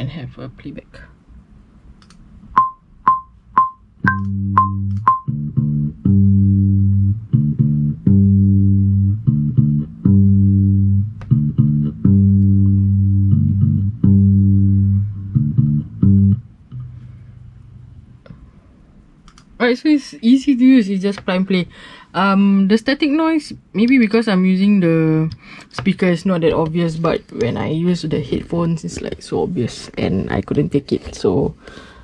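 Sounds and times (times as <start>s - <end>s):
metronome clicks: 2.0s - 5.7s
held bass guitar notes: 2.6s - 18.3s.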